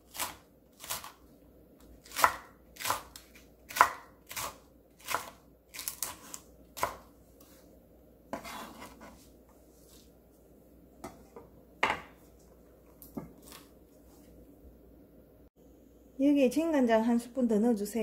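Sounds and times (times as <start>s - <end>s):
knife chopping on wooden board: 2.0s - 7.6s, 8.3s - 9.2s
knife rasping: 8.3s - 9.2s.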